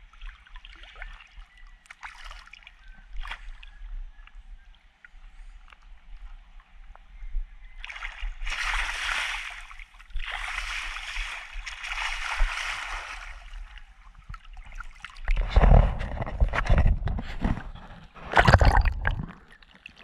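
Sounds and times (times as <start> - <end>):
choppy water thudding: 8.3 - 20.0
water splashing against camera: 10.0 - 20.0.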